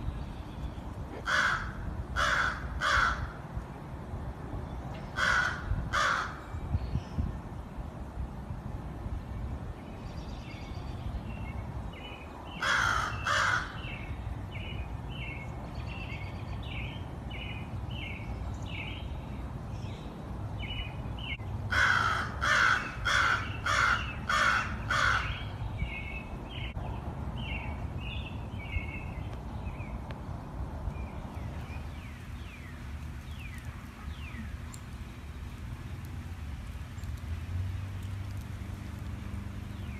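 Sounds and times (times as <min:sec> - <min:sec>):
crow cawing: 0:01.2 - 0:03.3, 0:05.2 - 0:06.4, 0:12.6 - 0:13.8, 0:21.7 - 0:25.3.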